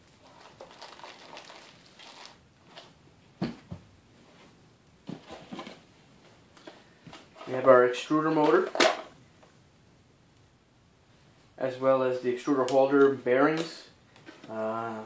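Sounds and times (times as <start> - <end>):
cardboard boxes and bags rustling: 5.1 - 5.9.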